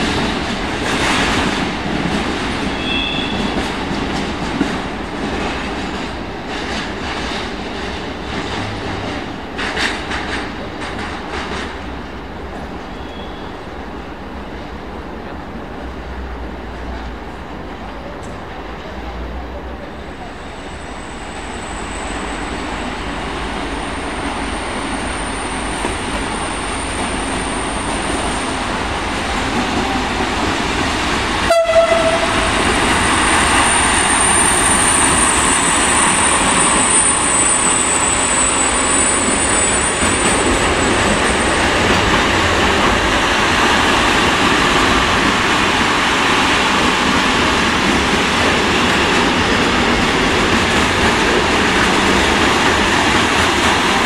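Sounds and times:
freight train wheels rumbling: 0.0s - 54.0s
short train horn: 2.7s - 3.6s, 12.9s - 13.6s, 31.4s - 32.6s.

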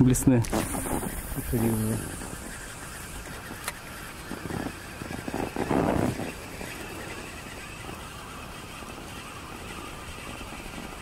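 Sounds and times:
outboard motor running: 0.0s - 11.0s
rustle-like burst: 0.3s - 7.7s.

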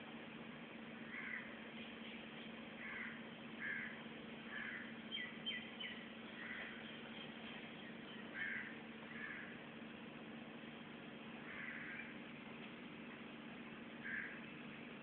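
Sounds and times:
steady low hum: 0.0s - 15.0s
birds short harsh calls: 1.1s - 2.2s, 2.8s - 9.6s, 11.4s - 12.2s, 14.0s - 14.5s.

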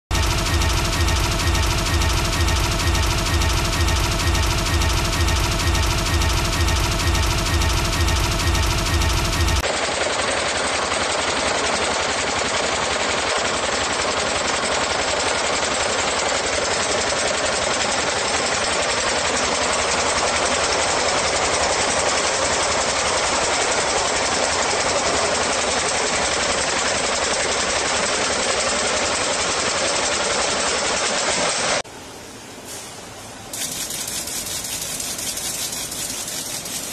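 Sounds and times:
braiding machine rattling: 33.6s - 36.9s.

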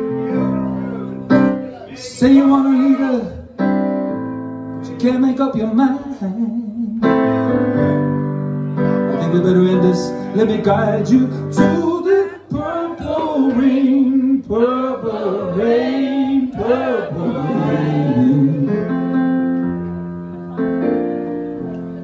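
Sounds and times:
piano chords: 0.0s - 22.0s
man singing with vibrato: 1.9s - 3.6s, 4.8s - 7.4s, 9.1s - 19.1s.

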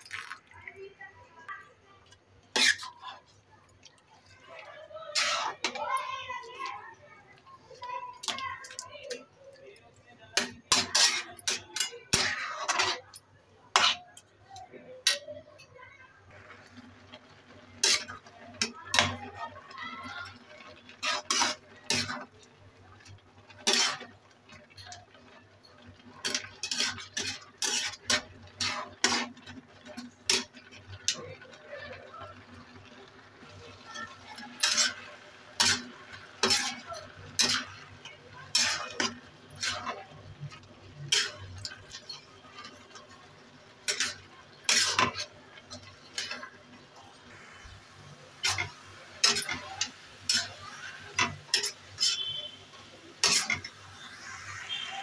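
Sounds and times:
spatula scraping a metal pan: 2.5s - 3.2s, 5.1s - 6.5s, 10.4s - 14.0s, 17.2s - 19.4s, 20.6s - 22.3s, 23.0s - 31.5s, 33.7s - 46.6s, 48.4s - 52.6s, 53.2s - 54.9s.

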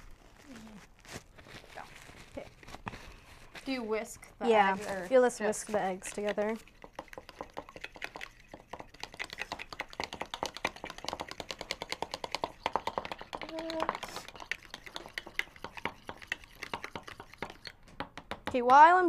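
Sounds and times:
fork whisking eggs in bowl: 4.9s - 17.9s.

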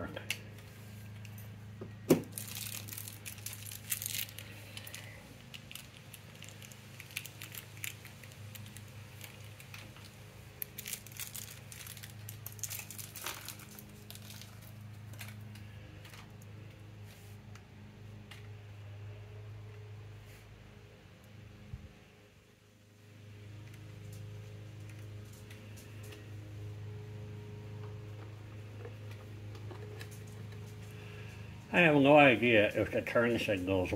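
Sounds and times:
steady low hum: 0.0s - 33.9s
wires rustling and crinkling: 0.2s - 18.5s, 23.4s - 33.9s.

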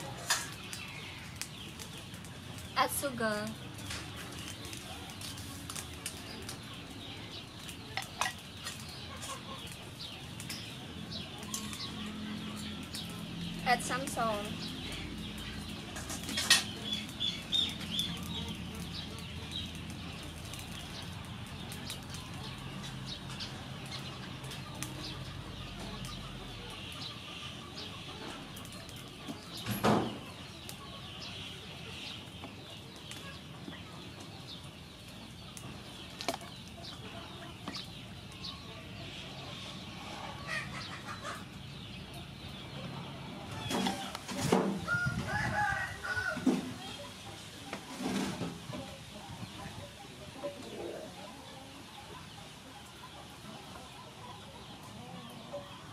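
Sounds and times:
chickens clucking: 0.0s - 55.9s
small birds chirping: 0.0s - 55.9s.

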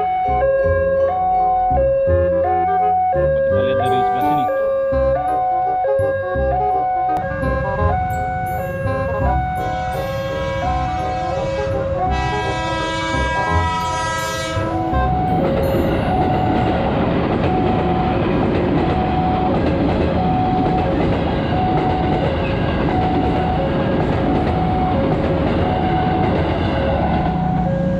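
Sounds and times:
two-tone level crossing alarm: 2.6s - 27.9s
train wheels rumbling on rails: 7.2s - 27.9s
train horn: 8.8s - 16.7s.

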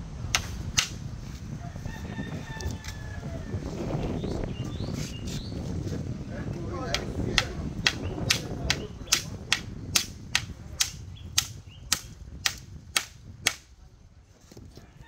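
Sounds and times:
hammer striking nail into wood: 6.9s - 13.7s.

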